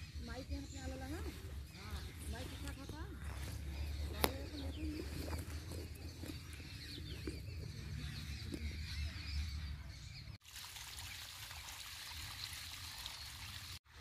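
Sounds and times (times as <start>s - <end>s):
water trickling: 10.4s - 13.8s.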